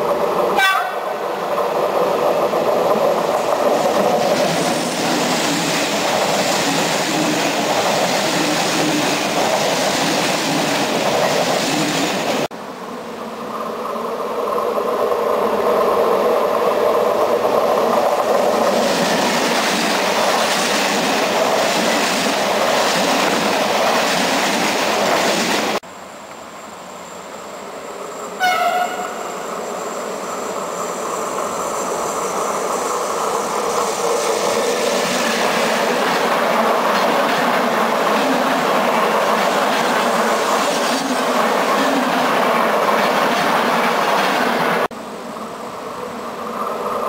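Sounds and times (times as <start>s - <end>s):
train rolling past: 0.0s - 47.0s
train horn blast: 0.6s - 1.1s, 28.4s - 29.4s.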